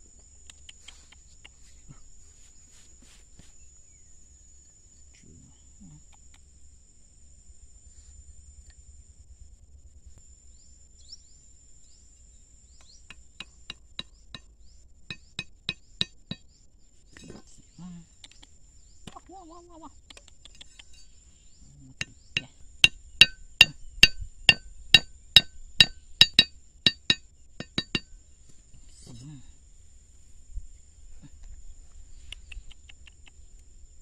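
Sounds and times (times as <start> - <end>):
machete blade knocks ringing: 22.0 - 28.1.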